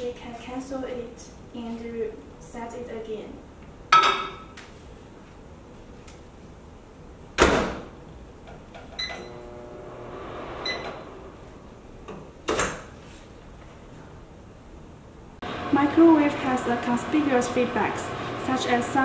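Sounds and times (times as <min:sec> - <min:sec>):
microwave low hum: 0:05.2 - 0:19.0.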